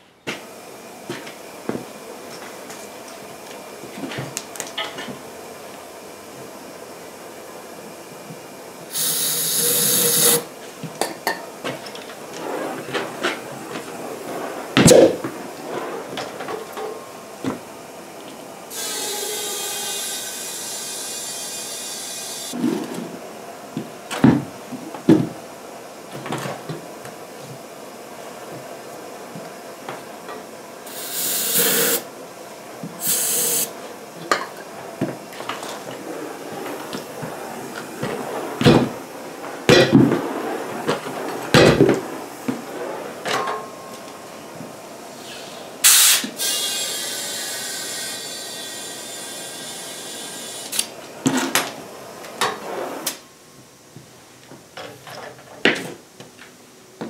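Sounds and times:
compressed air blast: 8.9s - 10.5s, 14.0s - 15.9s, 30.9s - 32.1s, 33.0s - 33.8s, 45.1s - 50.8s.

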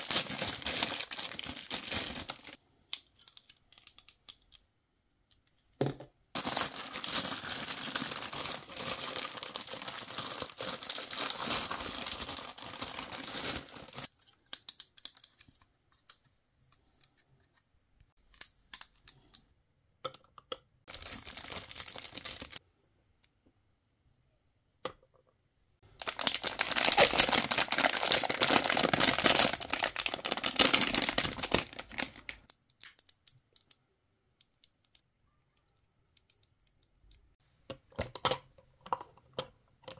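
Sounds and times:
plastic wrapping crinkling and tearing: 0.0s - 2.6s, 6.4s - 15.5s, 20.9s - 22.6s, 25.9s - 33.3s.

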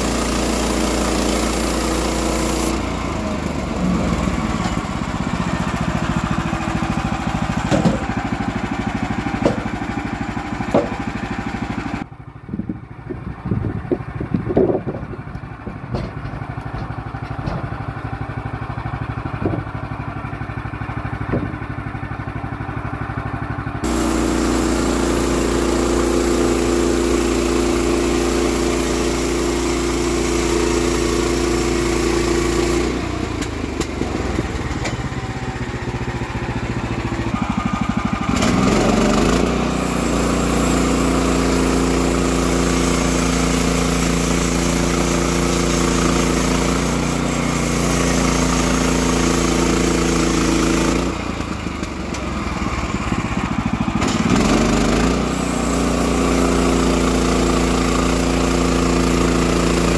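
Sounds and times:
gas engine idling and revving: 0.0s - 59.9s
engine knocks: 3.9s - 12.0s, 12.6s - 20.2s, 21.2s - 21.9s, 33.4s - 38.9s.

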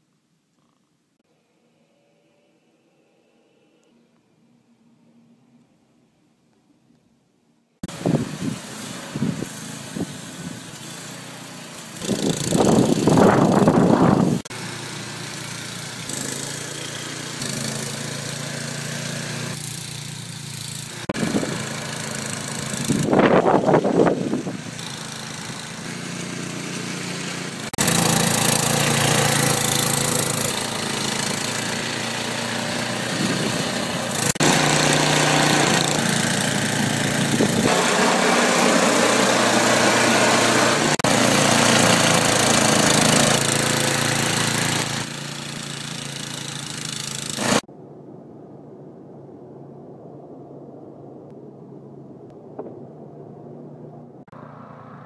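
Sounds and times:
snowblower engines running: 7.8s - 47.7s.

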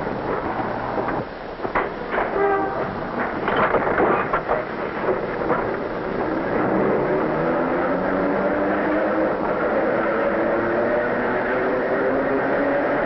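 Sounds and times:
elevated train clattering: 0.0s - 6.6s
horn-like tone: 2.3s - 3.0s.

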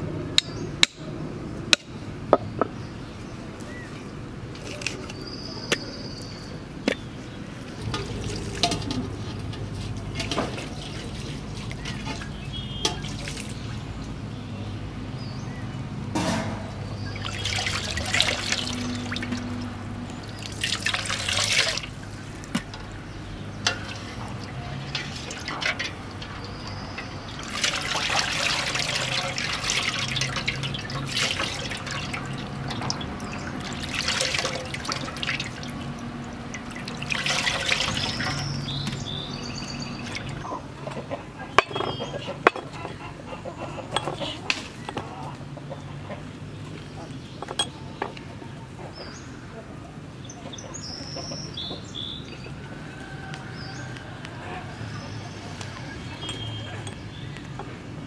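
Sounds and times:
water splashing in a metal pot: 7.8s - 13.8s, 16.2s - 40.5s.

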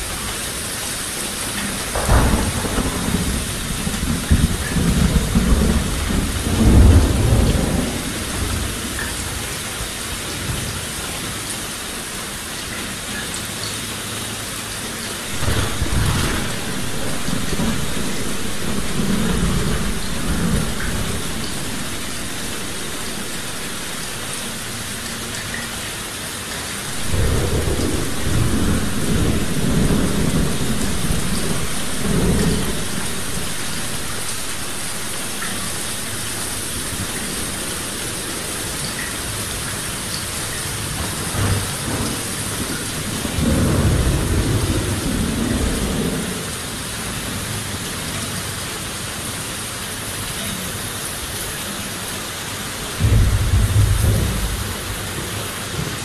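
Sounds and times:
heavy rain falling: 0.0s - 56.0s
rolling thunder: 1.6s - 9.5s, 15.2s - 25.9s, 26.8s - 46.5s, 53.0s - 56.0s.

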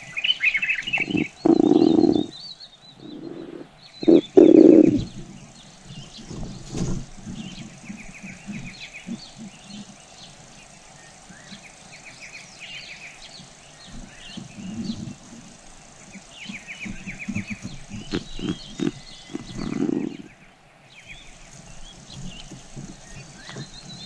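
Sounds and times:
small birds trilling: 0.0s - 24.0s
muffled thumps and rustles: 3.3s - 12.0s, 13.3s - 20.3s, 21.1s - 24.0s.

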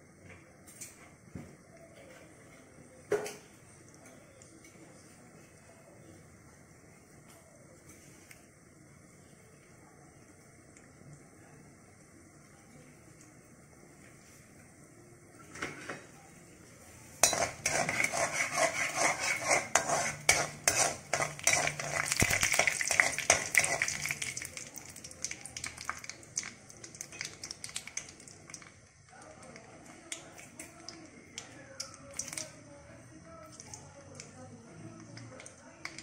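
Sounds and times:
oil sizzling: 17.1s - 32.6s
metal spatula scraping pan: 17.2s - 24.0s
mustard seeds popping: 21.2s - 28.8s.

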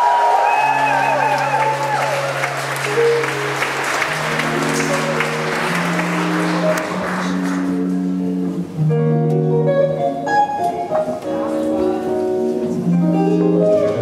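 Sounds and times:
audience applause: 0.0s - 8.0s
slow electric guitar chords: 0.7s - 14.0s.

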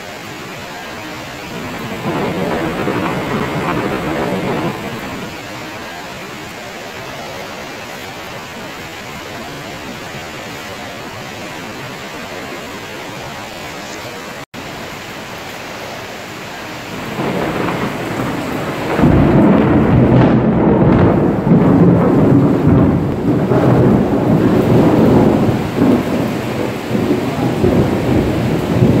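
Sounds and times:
rain hiss: 0.0s - 29.0s
thunder rumbling: 0.6s - 14.3s, 16.8s - 29.0s.

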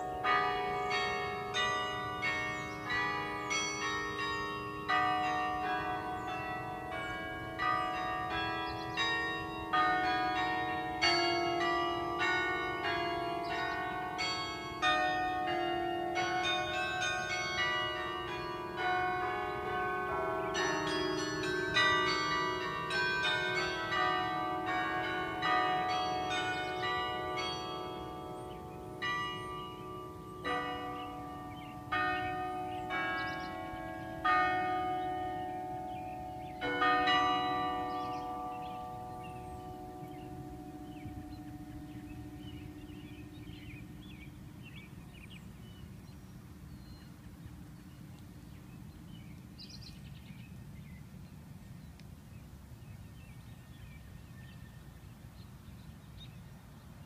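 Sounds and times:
carillon bells melody: 0.0s - 43.9s.

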